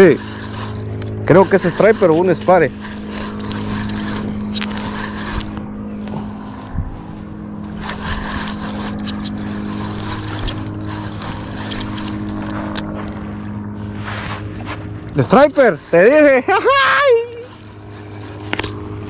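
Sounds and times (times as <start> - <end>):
reel handle and gear clicks: 0.0 - 6.2, 7.6 - 13.0, 17.2 - 18.8
fishing reel cranking: 0.0 - 13.3, 14.4 - 19.0
steady low hum: 0.0 - 19.0.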